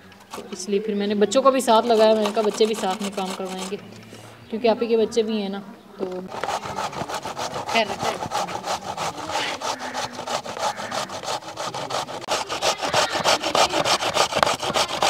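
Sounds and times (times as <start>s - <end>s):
carrots grated on metal grater: 1.7s - 3.8s, 6.3s - 15.0s.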